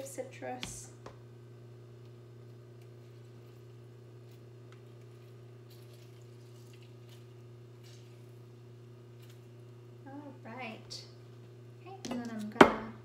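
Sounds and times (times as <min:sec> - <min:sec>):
low electrical hum: 0:00.0 - 0:13.0
juice dripping: 0:02.0 - 0:10.0.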